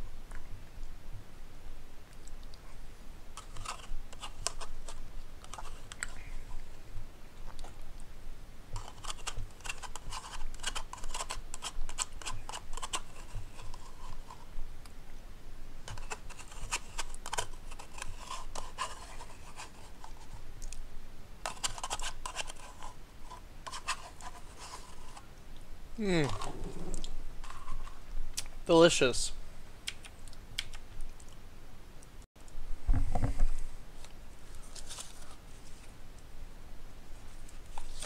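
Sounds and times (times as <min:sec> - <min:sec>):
spoon scraping yogurt cup: 0:03.4 - 0:06.6, 0:08.8 - 0:14.5, 0:15.9 - 0:20.4, 0:21.5 - 0:25.3.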